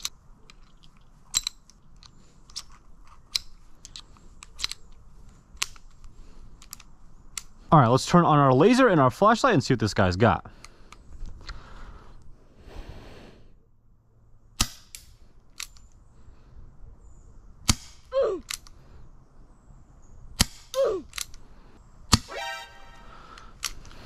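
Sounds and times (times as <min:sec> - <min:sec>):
airsoft revolver shots: 0:14.6 - 0:15.0.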